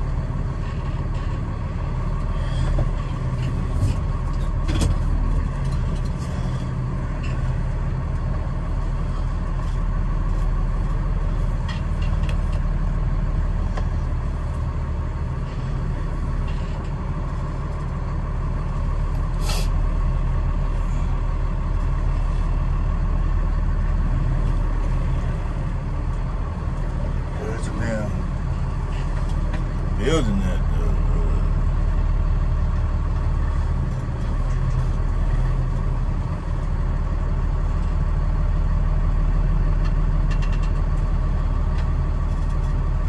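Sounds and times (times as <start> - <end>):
truck engine rumbling: 0.0 - 43.0
short hiss: 19.4 - 19.7.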